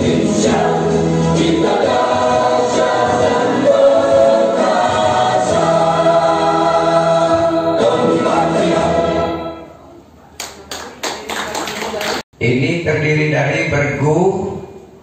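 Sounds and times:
choir singing: 0.0s - 9.8s
musical accompaniment: 0.0s - 10.0s.

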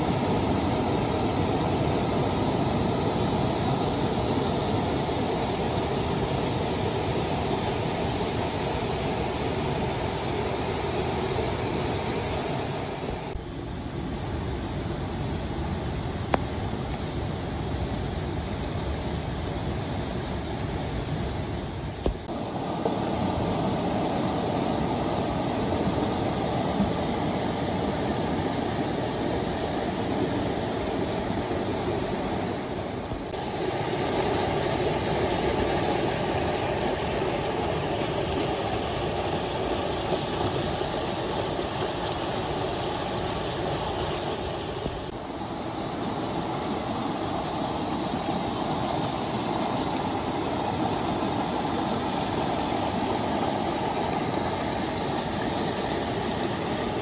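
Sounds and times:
floodwater rushing over rocks: 22.0s - 57.0s.

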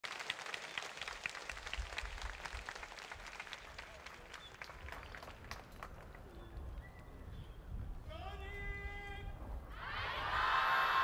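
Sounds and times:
crowd applauding: 0.0s - 6.4s.

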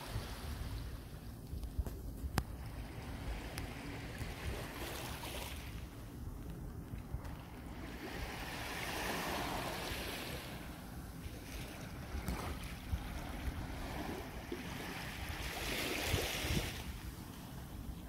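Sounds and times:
wind rumble on microphone: 0.0s - 18.0s
small waves lapping on rocks: 2.7s - 5.9s, 7.0s - 17.4s.

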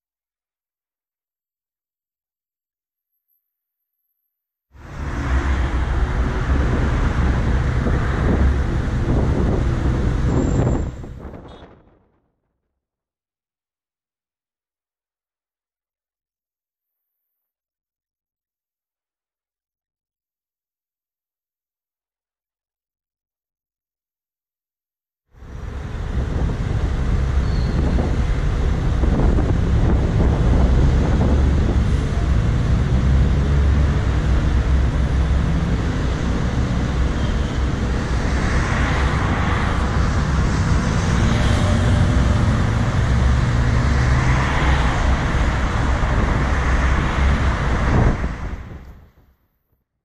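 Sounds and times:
road traffic rumble: 4.8s - 12.2s, 25.4s - 49.2s
wind on microphone: 4.9s - 12.0s, 25.7s - 49.2s.

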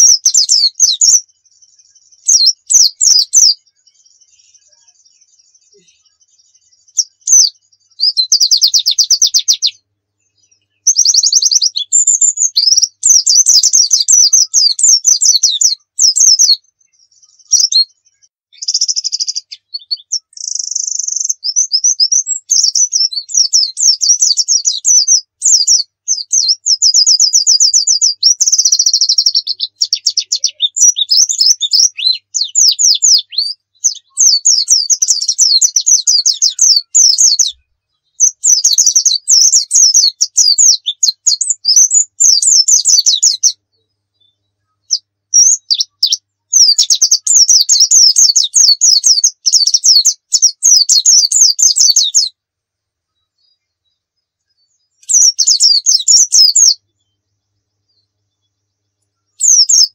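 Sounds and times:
bird trilling and warbling: 0.0s - 3.6s, 6.8s - 9.8s, 10.8s - 16.6s, 18.5s - 37.6s, 38.2s - 43.6s, 44.9s - 52.3s, 55.0s - 56.8s, 59.4s - 59.9s.

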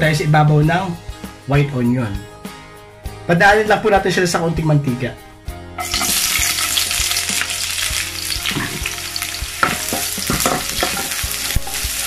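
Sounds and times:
onions sizzling in oil: 5.8s - 12.0s.

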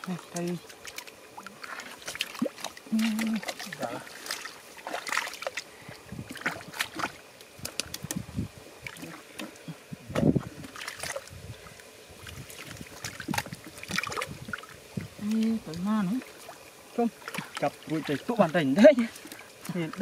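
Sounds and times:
hands splashing in muddy water: 0.4s - 5.7s, 6.3s - 8.2s, 10.4s - 11.3s, 12.2s - 14.7s.

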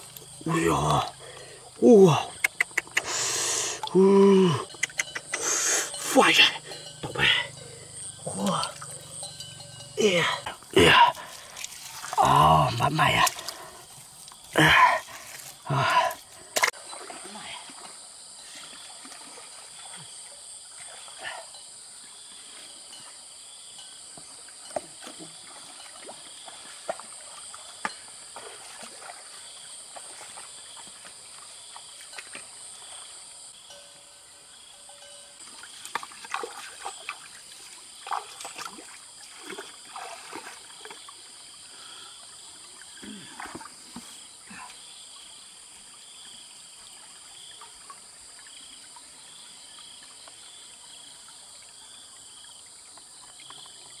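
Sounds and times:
insects chirping: 0.0s - 54.0s
stream trickling: 0.0s - 54.0s
short splashes and clicks: 35.5s - 41.1s.

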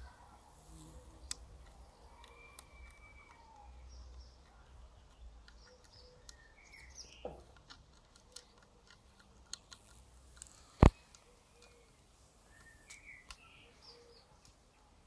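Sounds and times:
faint bird chirps: 0.0s - 7.4s, 10.9s - 15.0s
small ticks: 0.7s - 13.5s.

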